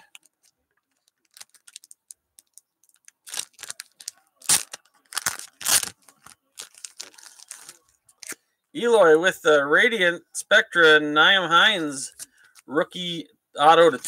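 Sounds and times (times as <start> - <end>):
plastic wrapping crinkling and ripping: 0.0 - 8.4.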